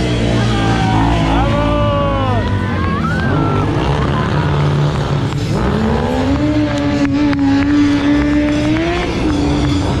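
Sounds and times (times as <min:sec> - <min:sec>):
motorcycle engine revving: 0:00.0 - 0:10.0.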